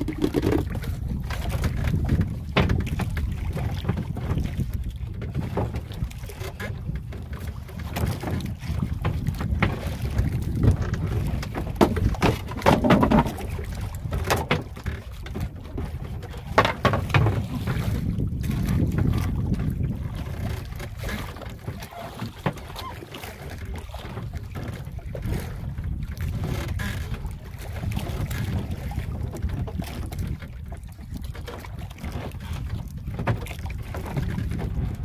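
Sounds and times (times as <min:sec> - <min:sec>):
fishing line knocks and clicks: 0:00.0 - 0:00.8
wind and water rumble: 0:00.0 - 0:35.0.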